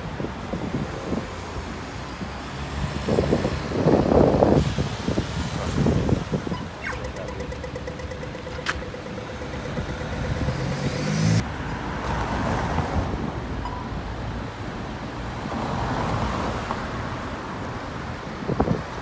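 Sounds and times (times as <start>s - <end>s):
city street traffic: 0.0s - 19.0s
nearby vehicle engine: 4.7s - 11.5s.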